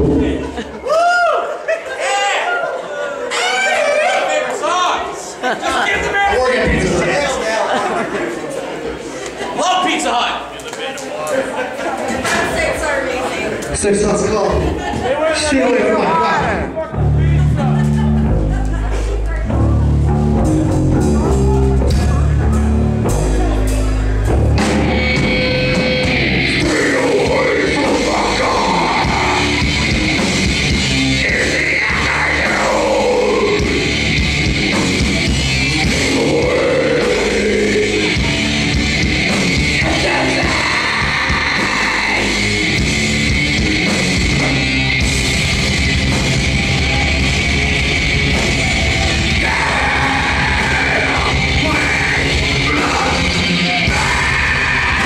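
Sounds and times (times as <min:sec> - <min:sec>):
drums: 0:00.0 - 0:01.4, 0:05.4 - 0:07.4, 0:16.4 - 0:55.0
distorted electric guitars: 0:16.5 - 0:55.0
vocalist yelling and singing: 0:26.2 - 0:30.2, 0:30.8 - 0:34.2, 0:35.2 - 0:39.0, 0:39.6 - 0:43.1, 0:48.4 - 0:55.0.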